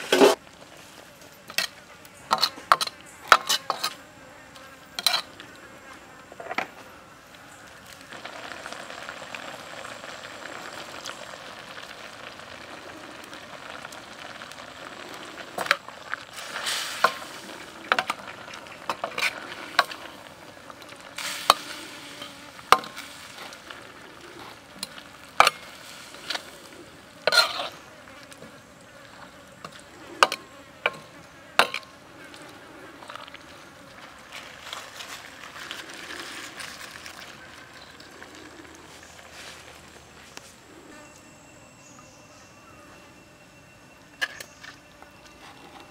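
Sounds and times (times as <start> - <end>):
metal spatula scraping a wok: 0.0 - 0.4, 1.5 - 4.0, 5.0 - 5.4, 16.4 - 20.1, 27.2 - 27.8
vegetables sizzling in a wok: 7.3 - 31.9.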